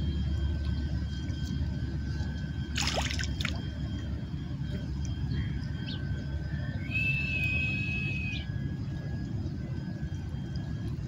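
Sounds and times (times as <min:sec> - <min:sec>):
steady low rumble: 0:00.0 - 0:11.0
sea water lapping at shore: 0:02.7 - 0:03.6.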